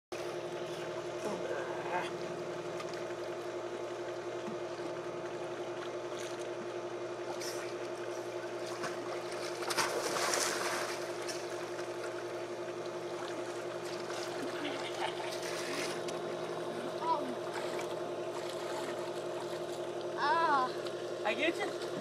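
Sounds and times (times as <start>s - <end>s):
mechanical hum: 0.1s - 22.0s
pool water splashing: 0.1s - 22.0s.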